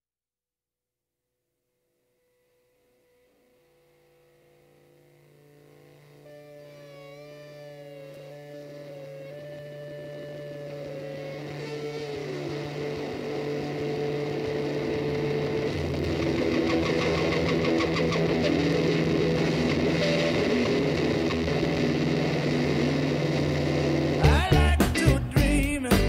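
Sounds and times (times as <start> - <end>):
instrumental music with beat: 5.5 - 26.0.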